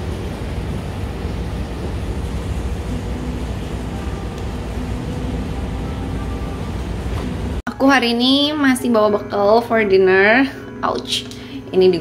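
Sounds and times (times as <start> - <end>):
low rumble: 0.0 - 7.6.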